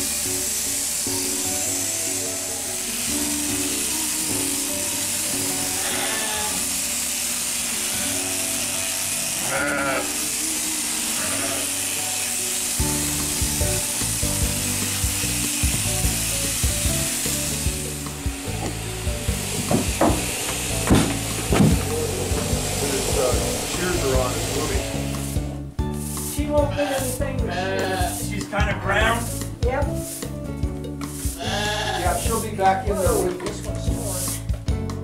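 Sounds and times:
electric clippers buzzing: 0:00.0 - 0:25.6, 0:31.2 - 0:32.3
background music: 0:00.0 - 0:35.0
sheep bleating: 0:05.5 - 0:06.7, 0:09.4 - 0:10.4, 0:11.0 - 0:12.1, 0:26.6 - 0:29.3, 0:31.3 - 0:32.3.

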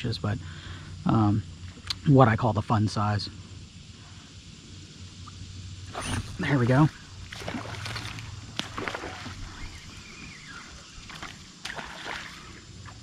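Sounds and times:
water noise: 0:05.2 - 0:13.0
fish splashing in water: 0:05.9 - 0:13.0.

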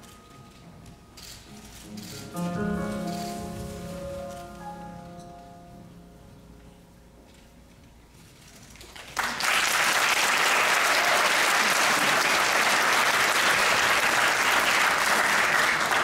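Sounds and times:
audience applause: 0:08.8 - 0:16.0.

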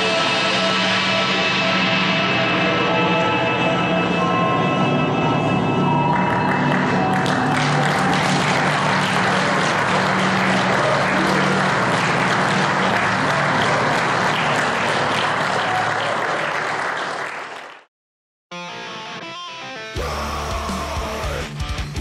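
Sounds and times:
audience applauding: 0:05.8 - 0:17.9.

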